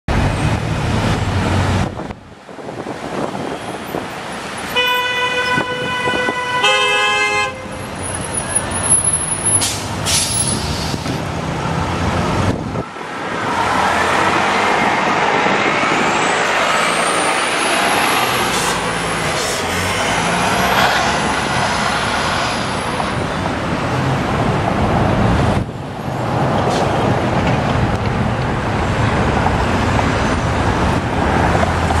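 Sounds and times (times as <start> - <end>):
busy city traffic: 0.1 - 32.0
car horn honks: 4.7 - 7.8
diesel bus passing close: 7.6 - 32.0.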